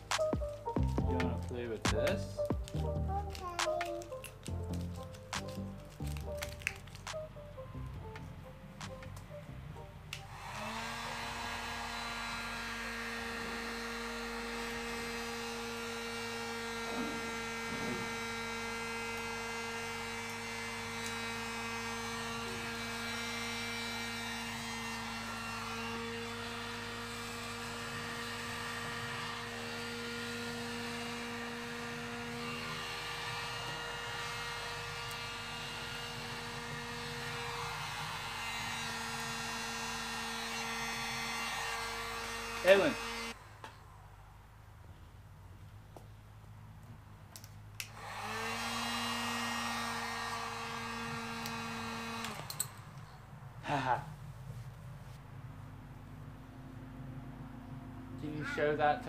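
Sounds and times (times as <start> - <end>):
heat gun fan humming: 8.0 - 43.7, 47.3 - 54.4.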